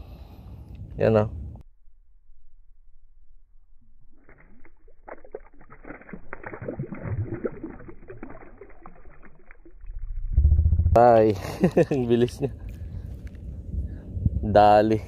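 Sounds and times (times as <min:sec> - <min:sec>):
water splashing and sloshing: 0:04.1 - 0:10.2.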